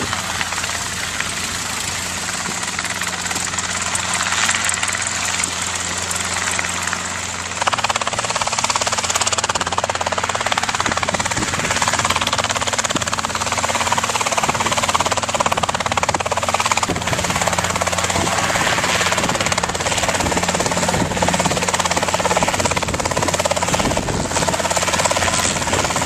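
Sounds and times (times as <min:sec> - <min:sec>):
helicopter engine and rotor drone: 0:00.0 - 0:26.0.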